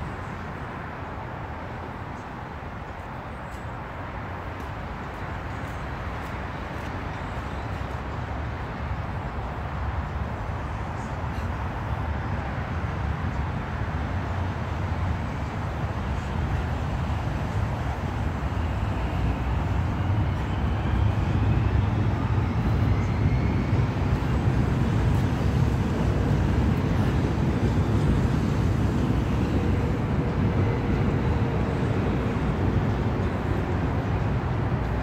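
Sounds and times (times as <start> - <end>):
low outdoor rumble: 9.2 - 35.0.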